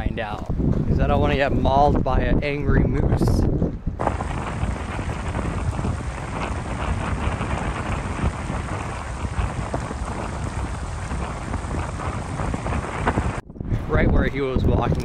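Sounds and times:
wind buffeting microphone: 0.0s - 15.0s
small crackles: 4.0s - 13.4s.

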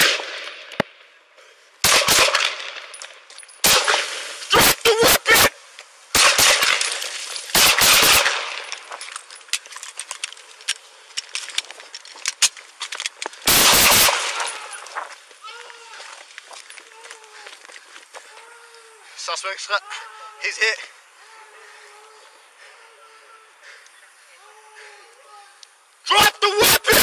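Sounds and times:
gunshots: 0.0s - 0.8s, 1.8s - 2.9s, 3.6s - 5.5s, 6.1s - 8.7s, 13.5s - 14.6s, 26.6s - 27.0s.

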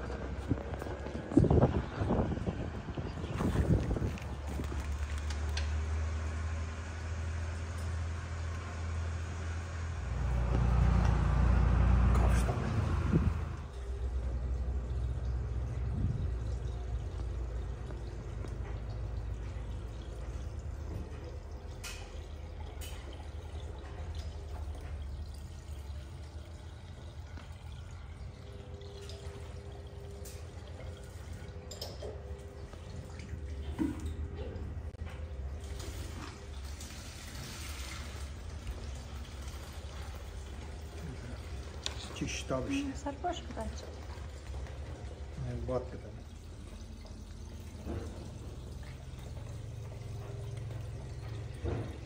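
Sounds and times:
milk pouring into plastic bucket: 35.4s - 42.9s.

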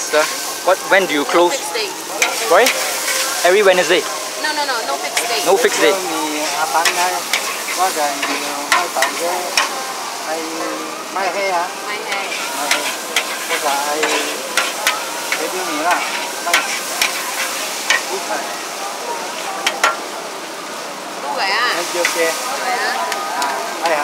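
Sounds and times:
noodles sizzling in a wok: 0.0s - 24.0s
spatula clanking against a wok: 6.5s - 9.8s, 12.1s - 18.1s, 19.6s - 20.1s.

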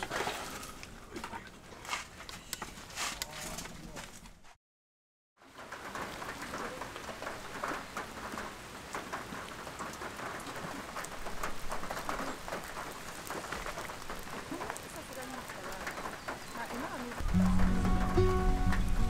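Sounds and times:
rain on grass and puddles: 5.4s - 19.0s.

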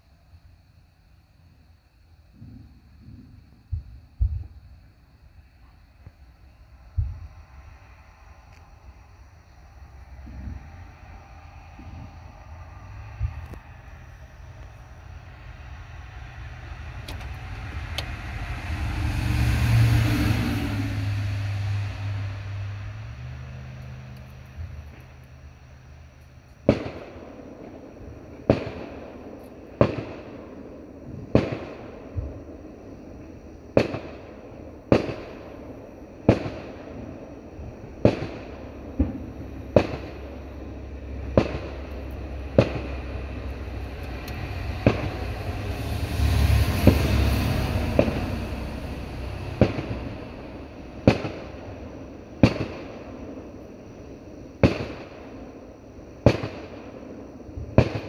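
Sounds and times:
fireworks bangs: 2.3s - 4.8s, 9.6s - 25.2s, 25.8s - 58.0s
rushing noise: 6.7s - 26.1s, 38.7s - 52.4s.

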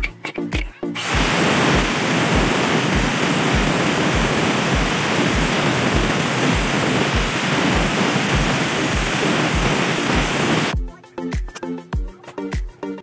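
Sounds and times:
deep thumping beat: 1.1s - 10.9s.

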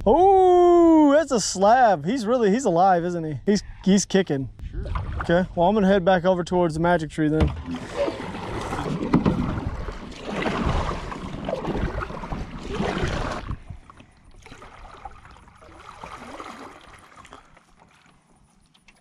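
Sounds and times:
kayak paddle strokes in water: 7.4s - 19.0s.

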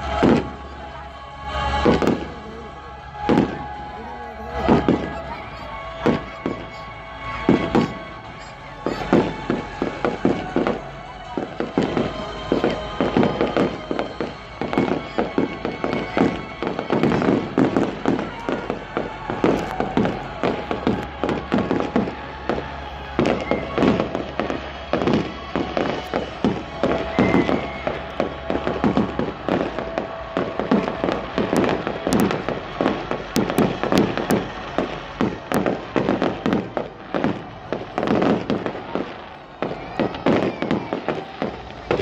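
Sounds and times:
fireworks bangs and crackles: 0.0s - 42.0s.

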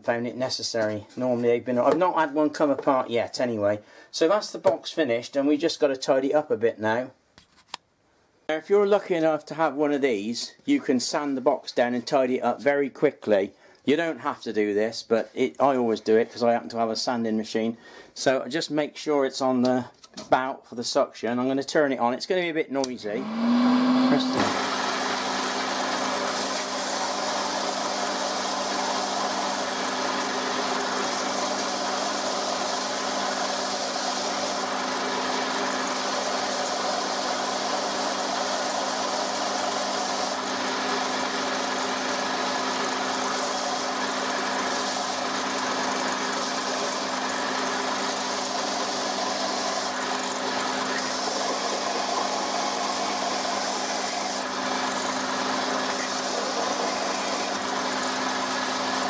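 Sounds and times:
sander motor hum: 23.2s - 59.0s
wood being sanded: 24.1s - 58.0s.

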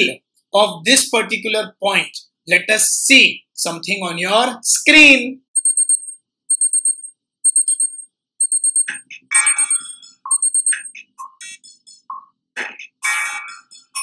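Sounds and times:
brief tones: 5.6s - 10.9s
alarm clock beeping: 5.6s - 11.0s.

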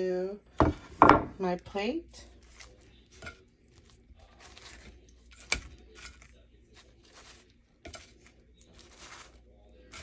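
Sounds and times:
paper towel rustling: 8.6s - 10.0s.

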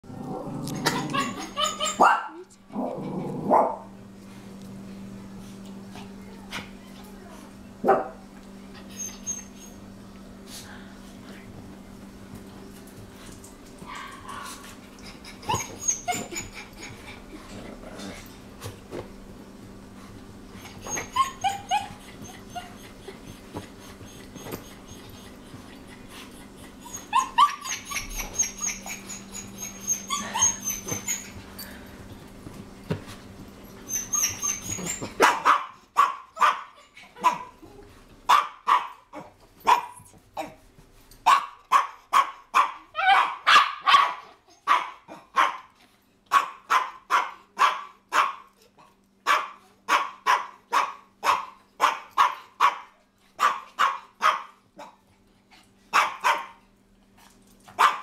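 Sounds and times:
dog whining: 0.5s - 3.3s, 8.7s - 9.9s, 13.9s - 17.3s, 20.5s - 31.8s, 33.7s - 35.2s
dog barking sharply: 41.3s - 45.6s, 57.8s - 58.0s.

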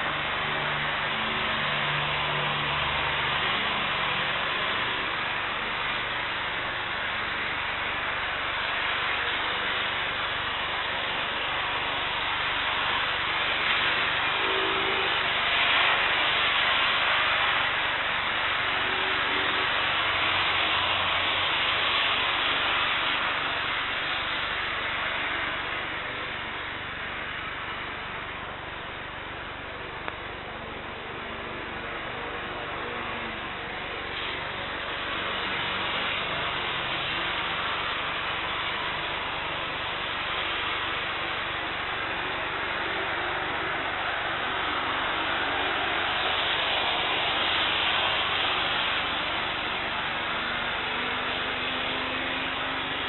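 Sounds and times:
runway spray: 0.0s - 53.0s
jet engines rushing: 31.6s - 53.0s.

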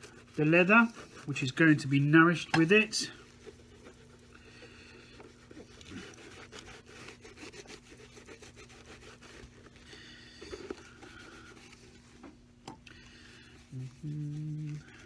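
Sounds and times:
cloth rubbing on leather shoe: 0.0s - 12.1s, 13.5s - 15.0s.

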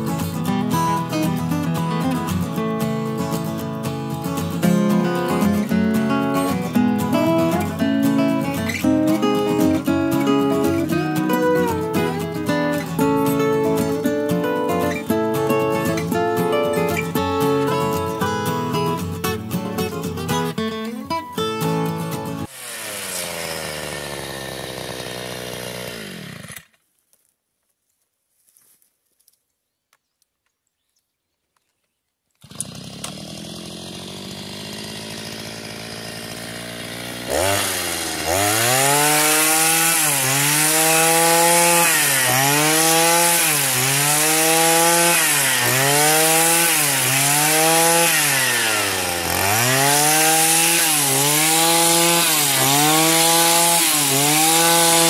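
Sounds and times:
hedge-trimmer cutting dry grass: 0.0s - 19.5s, 22.4s - 26.8s, 32.4s - 55.0s
two-stroke engine revving: 22.4s - 26.7s, 32.4s - 55.0s.

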